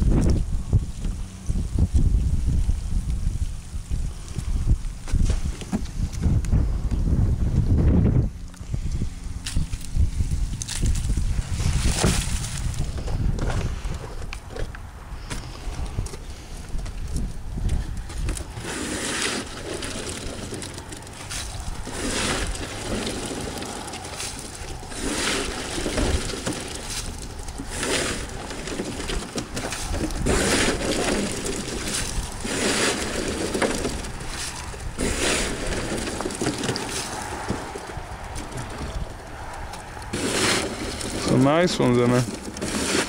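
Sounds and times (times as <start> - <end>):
scoop scraping crawfish shells: 17.8 - 39.1, 39.8 - 43.0.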